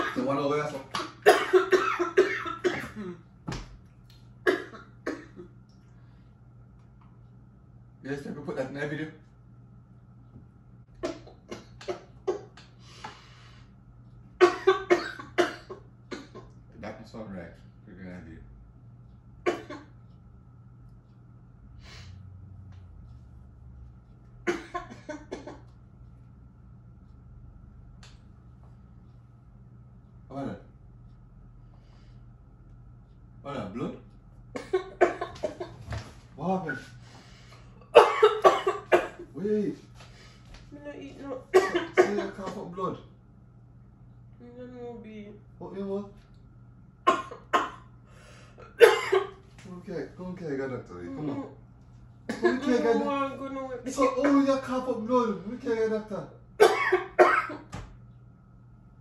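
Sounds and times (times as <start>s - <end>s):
woman coughing hard: 0.0s - 0.4s, 1.1s - 3.2s, 4.5s - 5.5s, 11.0s - 12.6s, 14.4s - 16.5s, 19.4s - 19.9s, 24.4s - 25.6s, 34.6s - 35.7s, 37.9s - 39.3s, 41.5s - 42.6s, 47.1s - 47.9s, 48.6s - 49.4s, 52.3s - 53.1s, 56.6s - 57.7s
person breathing: 12.8s - 13.8s, 21.8s - 22.3s, 31.6s - 32.3s, 37.0s - 37.8s, 48.0s - 48.6s.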